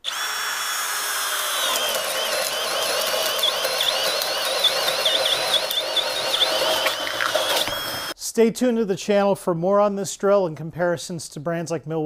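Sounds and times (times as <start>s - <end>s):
hammer drill boring into wood: 0.0s - 8.2s.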